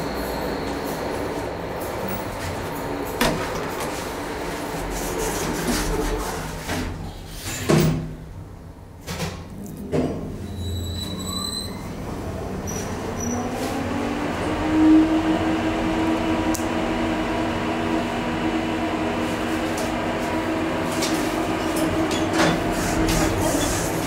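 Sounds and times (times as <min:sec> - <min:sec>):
electric train rumble and motor hum: 0:11.7 - 0:24.0.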